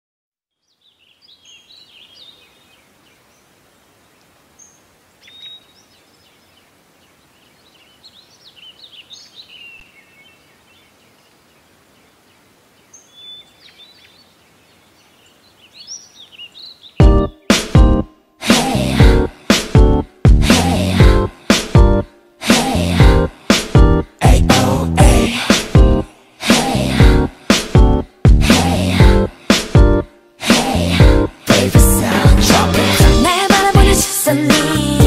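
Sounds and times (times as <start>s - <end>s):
faint steady hiss: 0.5s - 17.0s
small birds chirping: 0.5s - 17.5s.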